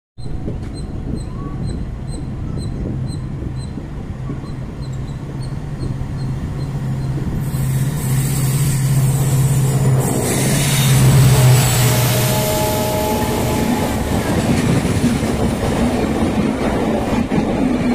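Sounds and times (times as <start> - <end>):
train wheels rumbling on track: 0.2 - 17.9
oncoming train rushing past: 0.4 - 17.9.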